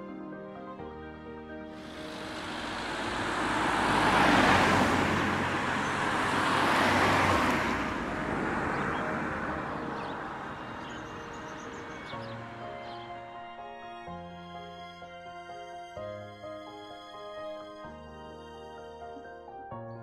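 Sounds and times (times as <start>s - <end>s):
cars passing: 1.8s - 13.9s.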